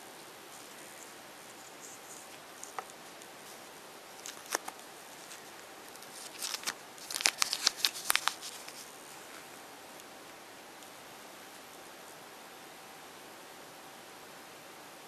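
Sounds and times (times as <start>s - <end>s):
plastic packet crinkling and tearing: 0.5s - 9.5s.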